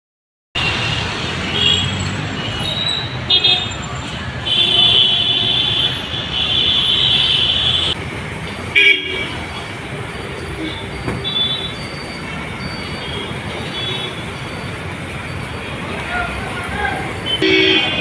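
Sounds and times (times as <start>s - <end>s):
vehicle horns honking: 0.6s - 8.0s, 8.7s - 9.4s, 10.4s - 14.4s, 17.1s - 18.0s
street traffic passing: 0.6s - 18.0s.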